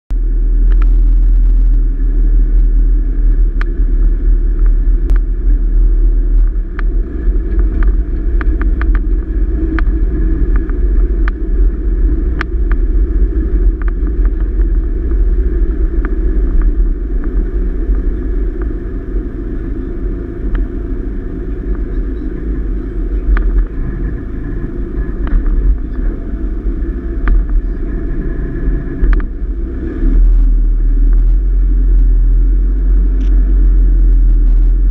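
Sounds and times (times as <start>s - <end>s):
vehicle driving slowly: 0.1s - 34.9s
sharp clicks and knocks: 4.5s - 5.4s, 6.4s - 11.6s, 12.2s - 18.8s, 29.0s - 29.4s.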